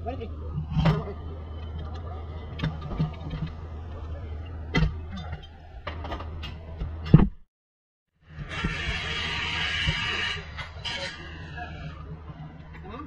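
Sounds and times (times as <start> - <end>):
steady low hum: 0.0 - 7.5.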